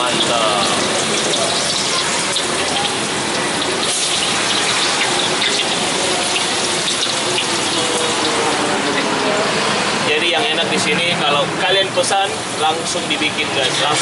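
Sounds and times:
tofu sizzling in hot oil: 0.0 - 9.2, 11.8 - 14.0.

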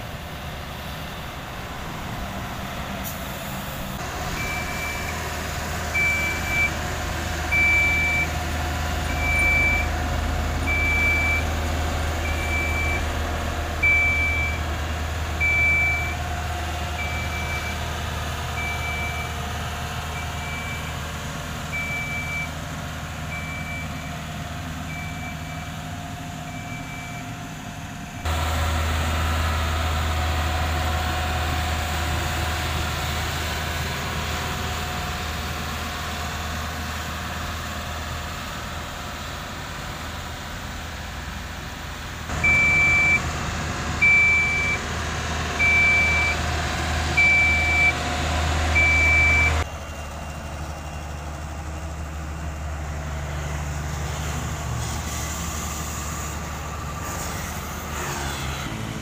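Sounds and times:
road roller diesel engine droning: 0.0 - 59.0
backup alarm beeps: 4.4 - 5.2, 6.0 - 6.8, 9.1 - 9.9, 13.8 - 14.6, 15.4 - 16.1, 42.4 - 43.2, 44.0 - 44.8, 48.8 - 49.6.

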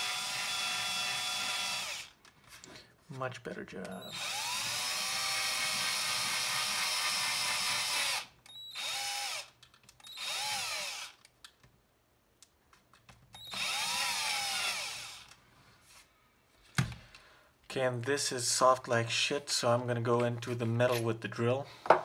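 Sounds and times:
power drill boring into plastic: 0.0 - 2.2, 4.0 - 11.2, 13.4 - 15.4.

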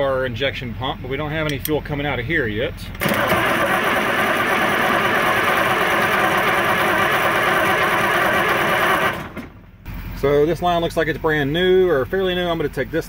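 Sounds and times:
diesel engine cranking: 2.7 - 11.5.

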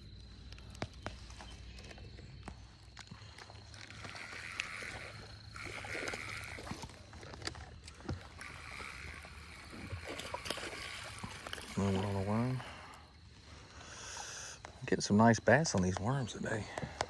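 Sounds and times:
fishing reel whirring: 2.9 - 14.4.

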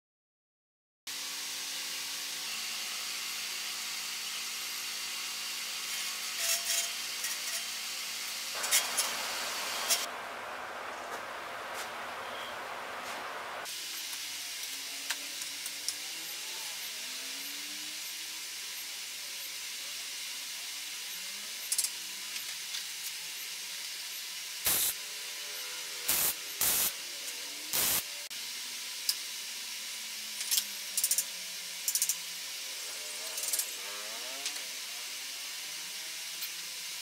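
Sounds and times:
steady hiss: 7.4 - 37.0
arc welding bursts: 7.5 - 14.4, 15.5 - 28.2.

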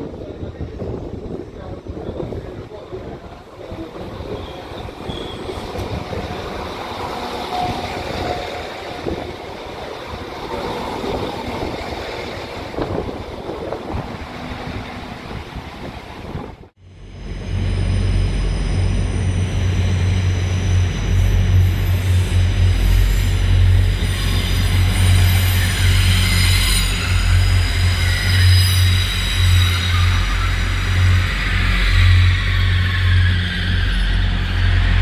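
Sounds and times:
wind buffeting microphone: 0.0 - 16.7
low train hum: 0.0 - 35.0
train wheels rumbling: 0.0 - 35.0.

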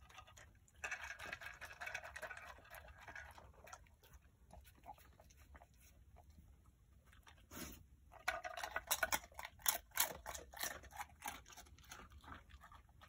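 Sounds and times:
dog licking and chewing: 0.0 - 13.0.

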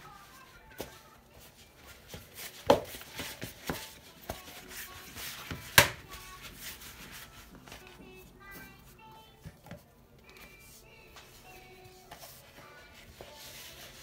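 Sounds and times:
dough slapped against plastic bowl: 5.5 - 6.1.

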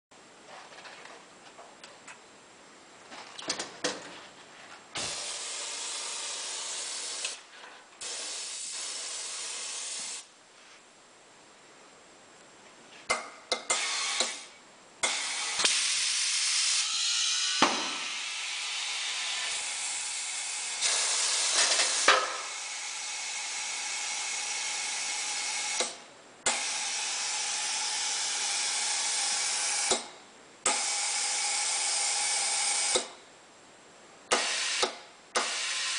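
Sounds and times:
compressed air hissing into tyre: 5.0 - 7.4, 8.0 - 10.3, 13.7 - 24.6.

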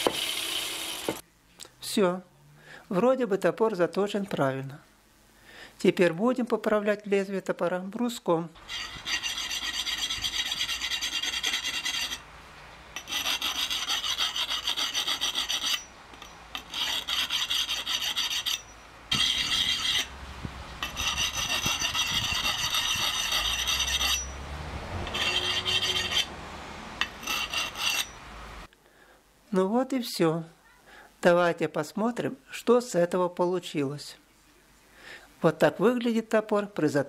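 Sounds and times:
whetstone scraping axe blade: 8.7 - 12.2, 13.0 - 20.1, 20.8 - 24.4, 25.0 - 26.3, 27.0 - 28.2.

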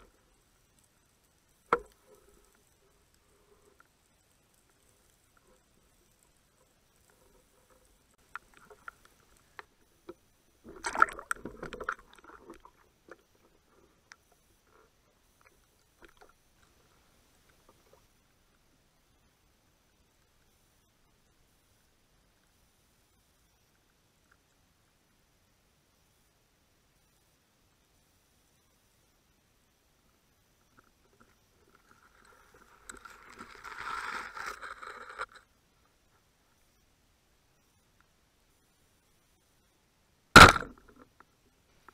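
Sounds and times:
small clicks and knocks underwater: 0.0 - 18.8, 23.6 - 25.1, 30.6 - 36.7, 40.4 - 41.9
water sloshing and bubbling: 5.4 - 18.2
underwater scraping through seagrass: 31.8 - 35.4.

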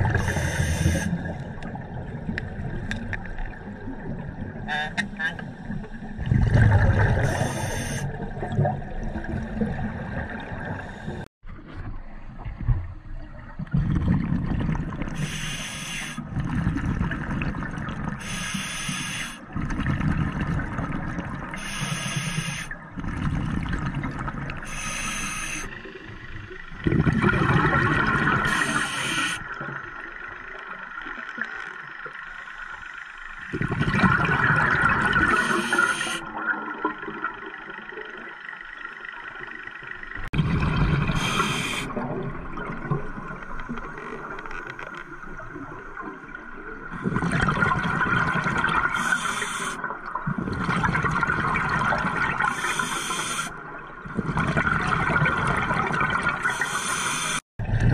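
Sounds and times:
regulator bubbling hiss: 0.0 - 1.4, 7.0 - 8.3, 14.1 - 16.2, 18.1 - 19.5, 21.4 - 29.5, 33.6 - 36.3, 40.2 - 42.0, 48.2 - 49.9, 50.9 - 53.7, 56.0 - 57.4
low rumble of water: 0.0 - 18.8, 19.4 - 25.0, 25.7 - 28.8, 29.4 - 56.6, 57.6 - 57.9.

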